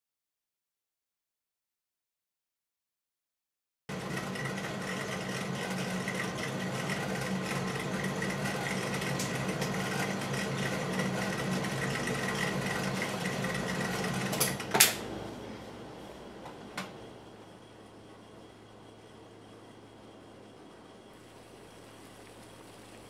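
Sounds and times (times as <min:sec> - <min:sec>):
rock tumbler humming: 0:21.2 - 0:23.0.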